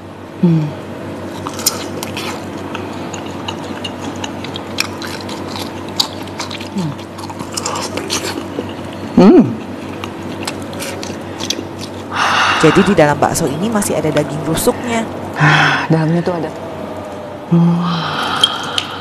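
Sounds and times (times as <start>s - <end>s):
biting and chewing: 1.2s - 12.3s
wet mouth clicks and smacks: 18.4s - 18.9s.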